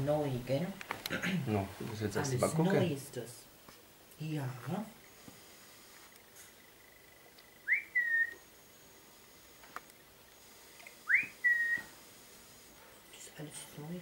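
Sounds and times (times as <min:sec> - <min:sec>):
person whistling: 0:07.7 - 0:08.4, 0:11.1 - 0:11.9.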